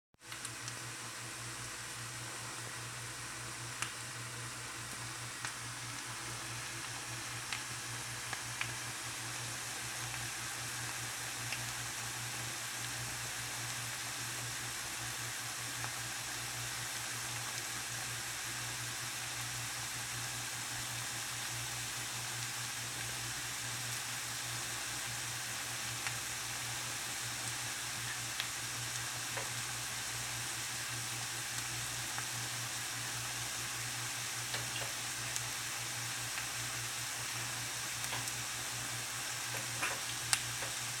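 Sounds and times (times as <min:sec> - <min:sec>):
food sizzling in a frying pan: 0:00.2 - 0:41.0
small pops and crackles: 0:00.3 - 0:00.8, 0:04.9 - 0:06.0, 0:07.5 - 0:08.8, 0:10.9 - 0:11.8, 0:27.4 - 0:29.6, 0:34.5 - 0:35.5, 0:38.0 - 0:38.4, 0:39.4 - 0:40.8.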